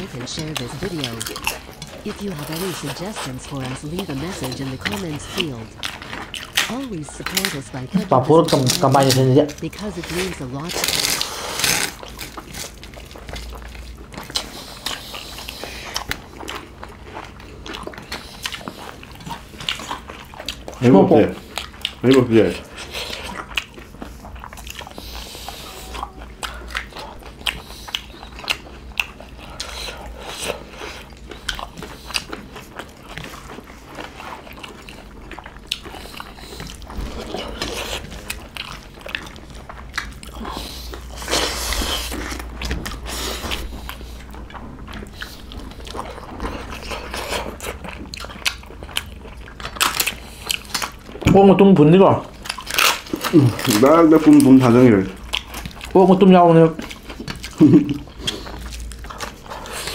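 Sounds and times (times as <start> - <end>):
fingers mixing food on steel plates: 0.0 - 11.8
low steady hum: 0.0 - 59.9
people chewing with mouth smacks: 0.0 - 59.9.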